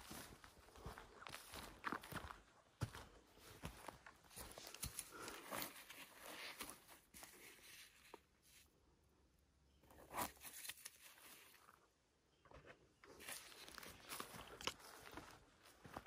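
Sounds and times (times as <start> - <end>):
rustling in dry leaf litter: 10.1 - 11.7.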